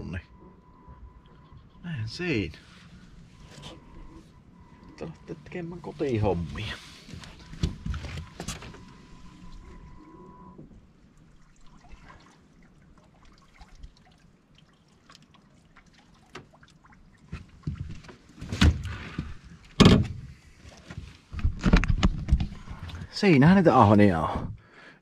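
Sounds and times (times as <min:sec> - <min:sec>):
water splashing and trickling: 0:10.6 - 0:18.4.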